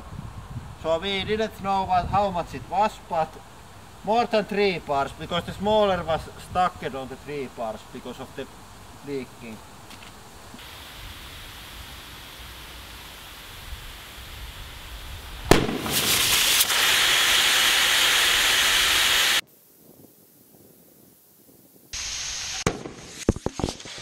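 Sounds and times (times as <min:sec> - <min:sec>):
compressed air hissing: 0:06.3 - 0:19.4, 0:21.9 - 0:24.0
air rushing from hose: 0:10.5 - 0:19.4, 0:21.9 - 0:24.0
football bursting with loud bang: 0:15.4 - 0:17.8.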